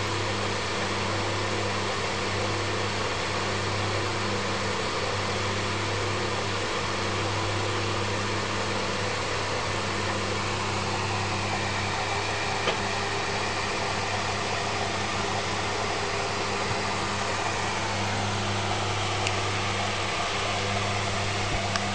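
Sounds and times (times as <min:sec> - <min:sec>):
electric fan whirring: 0:00.0 - 0:21.9.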